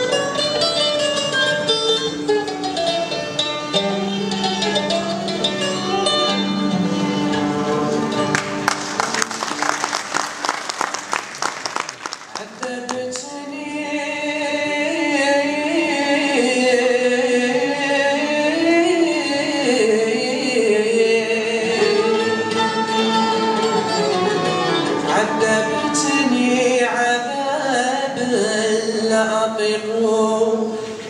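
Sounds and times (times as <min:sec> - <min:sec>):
oud: 0:00.0 - 0:09.7, 0:12.4 - 0:31.0
violins: 0:00.0 - 0:11.2, 0:18.2 - 0:28.2
mandolin: 0:00.0 - 0:11.8, 0:12.6 - 0:31.0
men singing together: 0:21.0 - 0:29.3.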